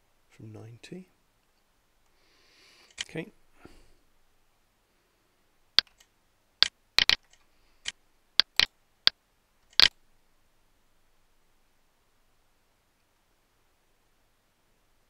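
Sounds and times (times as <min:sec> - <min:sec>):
computer mouse clicking: 0:07.0 - 0:07.4, 0:08.4 - 0:08.7, 0:09.7 - 0:09.9.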